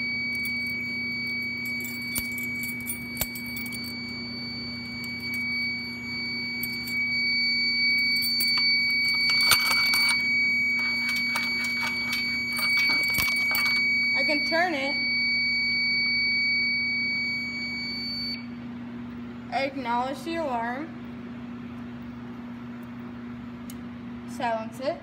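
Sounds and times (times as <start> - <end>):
fire alarm steady tone: 0.0 - 18.6
keys jangling: 0.3 - 4.1, 6.6 - 7.0, 8.0 - 13.9.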